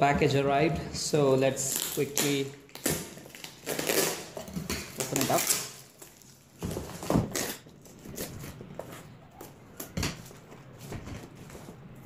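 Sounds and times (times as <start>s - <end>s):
tape ripping: 1.6s - 8.6s
cardboard box rustling and crinkling: 3.2s - 9.0s.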